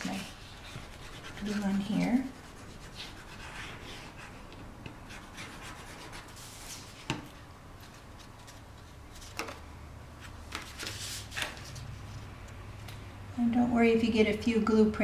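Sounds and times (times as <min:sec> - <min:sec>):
cardstock rubbing and sliding: 0:10.2 - 0:11.9.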